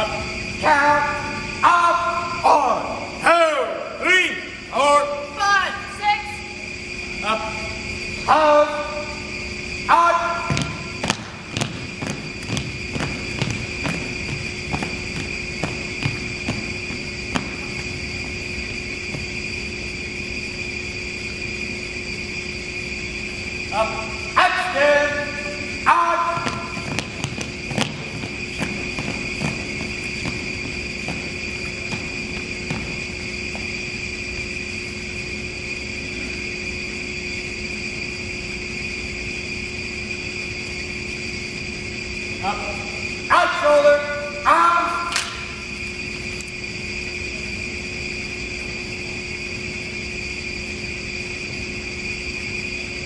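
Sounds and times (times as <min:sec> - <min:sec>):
room hum with high whine: 0:00.0 - 0:53.0
heel click on wooden floor: 0:10.5 - 0:16.7.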